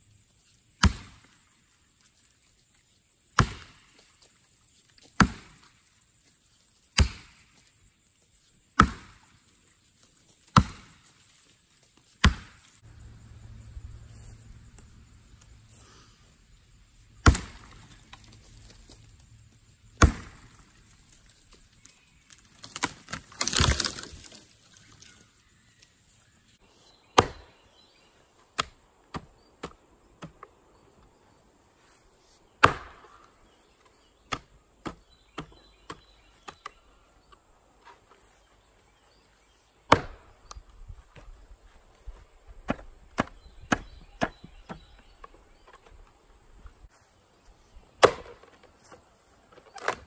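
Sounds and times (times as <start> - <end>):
axe splitting log: 0.8 - 1.2, 3.4 - 3.8, 5.2 - 5.7, 7.0 - 7.4, 8.8 - 9.2, 10.5 - 11.0, 12.2 - 12.7, 17.2 - 18.2, 20.0 - 20.6, 22.3 - 24.2, 27.2 - 27.6, 32.6 - 33.3, 39.9 - 40.6, 42.7 - 45.0, 48.0 - 48.6
hand axe chopping wood: 0.8 - 1.2, 3.4 - 3.8, 5.2 - 5.7, 7.0 - 7.4, 8.8 - 9.2, 10.5 - 11.1, 12.2 - 12.8, 17.2 - 17.9, 20.0 - 20.5, 27.2 - 27.6, 32.6 - 33.2, 39.9 - 40.6, 42.7 - 45.0, 48.0 - 48.6.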